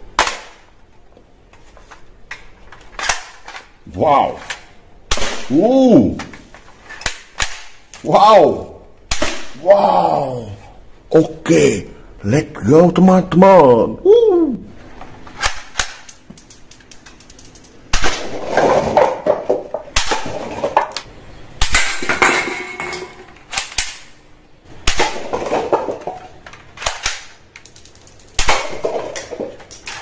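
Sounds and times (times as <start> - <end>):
toy guns firing: 26.8 - 30.0.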